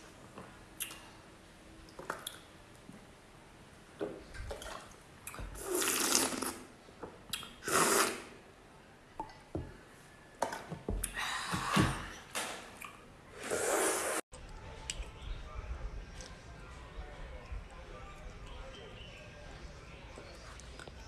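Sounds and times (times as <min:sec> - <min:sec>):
person slurping from a glass: 0:05.6 - 0:06.7, 0:07.6 - 0:08.3.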